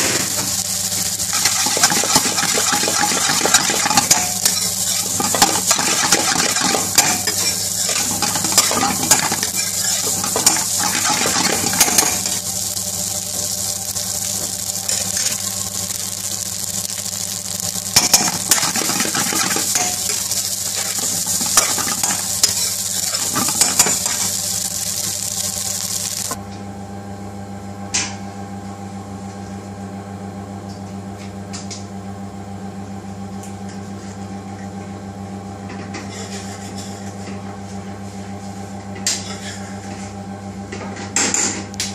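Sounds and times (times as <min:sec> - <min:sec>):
food sizzling in a pan: 0:00.0 - 0:26.4
steady low hum: 0:00.0 - 0:26.9
spatula scraping a pan: 0:01.3 - 0:12.4, 0:36.0 - 0:37.1.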